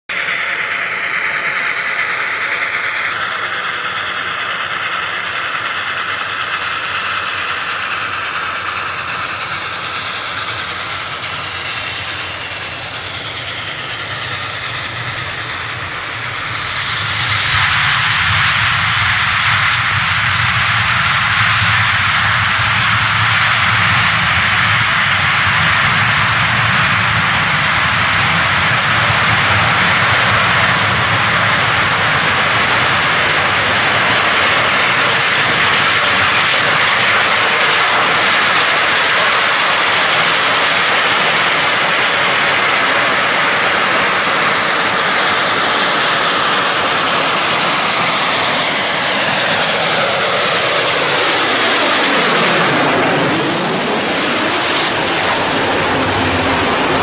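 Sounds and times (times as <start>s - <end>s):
locomotive exhaust: 0.1s - 20.4s
train wheels on rail: 0.1s - 57.0s.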